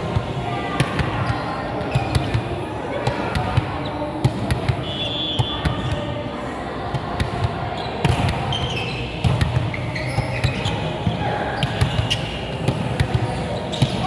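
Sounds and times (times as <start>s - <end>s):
sneaker squeaks: 1.1s - 2.4s, 7.7s - 14.0s.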